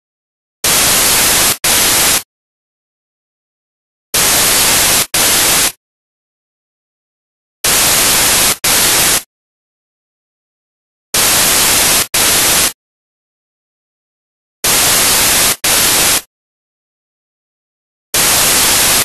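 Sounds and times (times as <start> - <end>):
white-noise static bursts: 0.6 - 2.3, 4.2 - 5.8, 7.6 - 9.3, 11.2 - 12.8, 14.6 - 16.3, 18.2 - 19.0.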